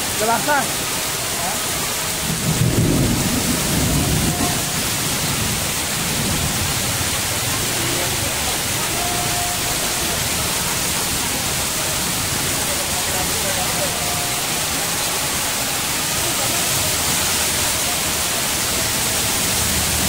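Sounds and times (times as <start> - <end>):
heavy rain pouring: 0.0 - 20.0
low rumble of thunder: 2.4 - 6.8.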